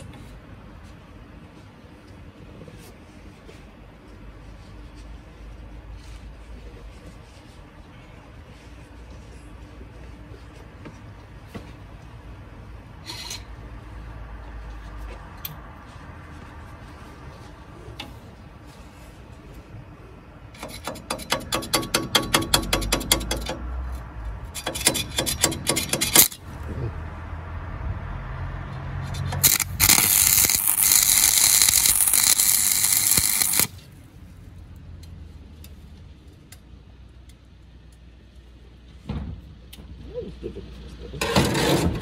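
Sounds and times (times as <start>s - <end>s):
welding arc crackling hiss: 29.4s - 33.8s.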